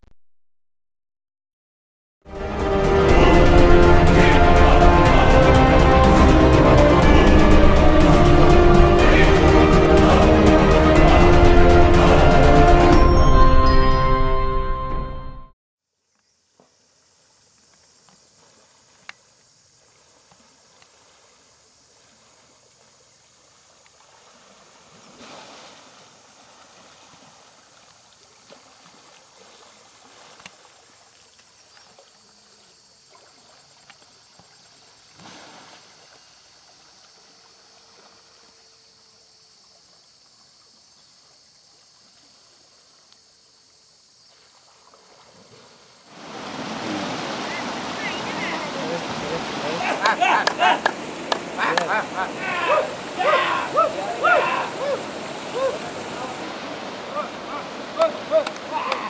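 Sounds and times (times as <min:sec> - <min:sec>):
water sloshing and churning: 0:17.2 - 0:38.7, 0:44.2 - 0:59.0.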